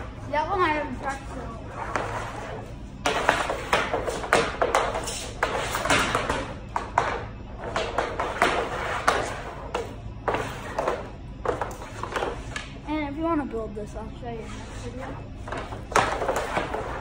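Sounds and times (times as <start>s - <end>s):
hockey stick clacking puck: 3.1s - 12.7s, 15.5s - 17.0s
puck shot at net: 3.1s - 12.8s, 15.5s - 17.0s.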